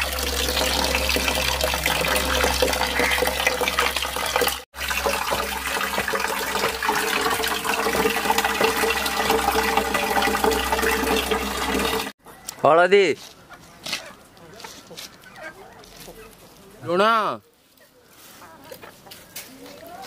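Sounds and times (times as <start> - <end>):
running water rushing: 0.0 - 12.2.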